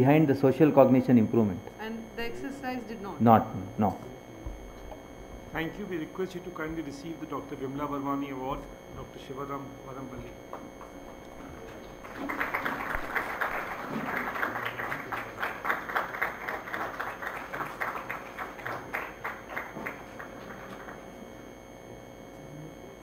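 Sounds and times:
audience applauding: 11.0 - 21.1.

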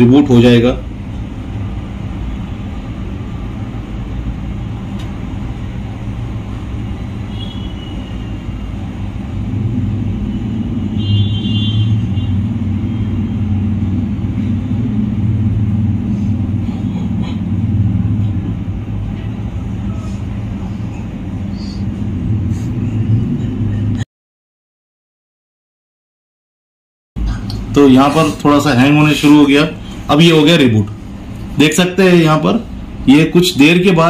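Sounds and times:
steady low rumble: 0.0 - 7.3, 8.4 - 24.0.

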